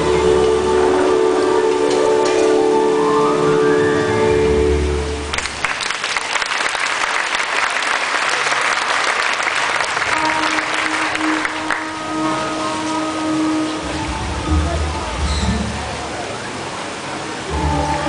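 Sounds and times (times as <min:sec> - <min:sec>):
music with long held notes: 0:00.0 - 0:05.5, 0:09.8 - 0:18.0
audience applauding: 0:05.3 - 0:12.4.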